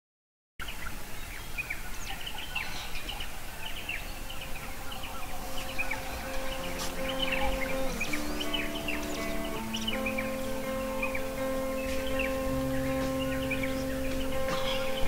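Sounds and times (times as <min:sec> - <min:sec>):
birds chirping: 0:00.6 - 0:15.0
held musical note: 0:06.2 - 0:15.0.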